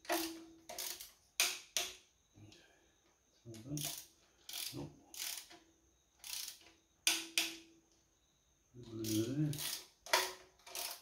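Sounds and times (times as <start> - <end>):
ratchet wrench clicking: 0.0 - 2.0, 3.8 - 5.6, 6.2 - 7.6, 8.9 - 11.0.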